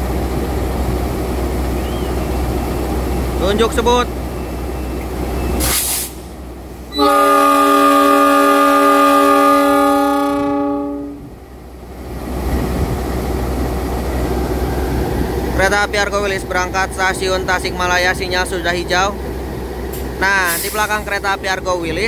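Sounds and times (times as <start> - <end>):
locomotive idling rumble: 0.0 - 22.0
short air hiss: 5.6 - 6.3, 20.5 - 20.9
multi-note air horn blast: 7.0 - 11.2.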